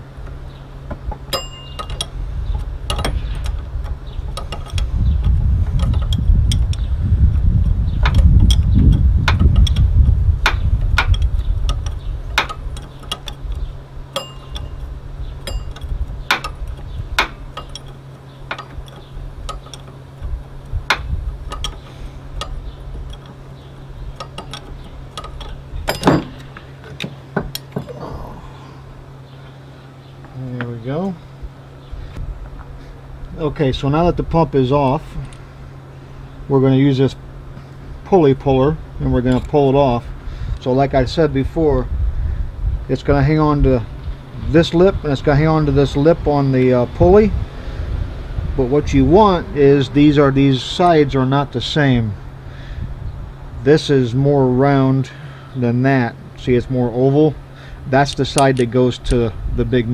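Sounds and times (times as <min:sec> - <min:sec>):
low rumble: 0:00.0 - 0:30.5, 0:31.1 - 0:53.7
steady low hum: 0:00.0 - 0:59.9
metal clank: 0:00.3 - 0:06.9, 0:08.0 - 0:28.0
wrench clicking and tapping metal: 0:07.6 - 0:20.0, 0:24.1 - 0:27.8.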